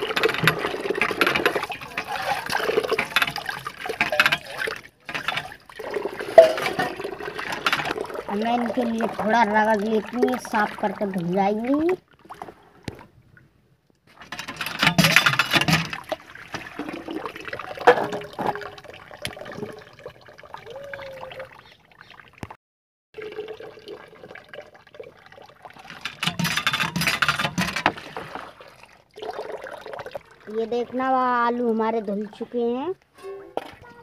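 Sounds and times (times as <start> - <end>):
water splashing in a tub: 0.0 - 13.2, 14.1 - 22.6, 23.2 - 32.4.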